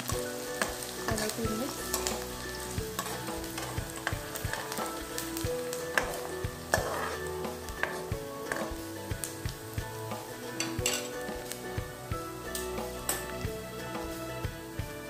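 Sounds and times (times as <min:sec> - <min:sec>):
metal spoon scraping a pan: 0:00.0 - 0:09.3, 0:09.9 - 0:11.6, 0:12.5 - 0:13.4
onions sizzling in oil: 0:00.0 - 0:15.0.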